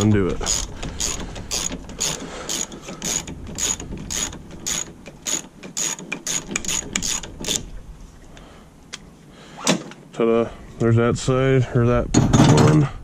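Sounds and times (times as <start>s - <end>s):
socket ratchet clicking: 0.5s - 7.6s.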